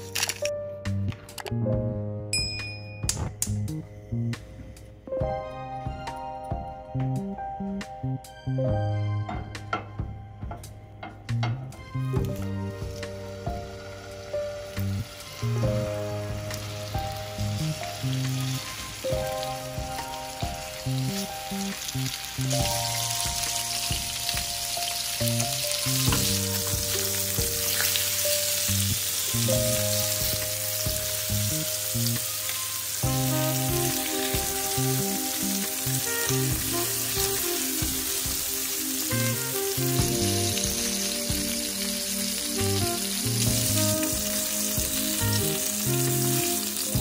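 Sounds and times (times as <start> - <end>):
background music: 0.0 - 47.0
fish sizzling in a frying pan: 12.2 - 47.0.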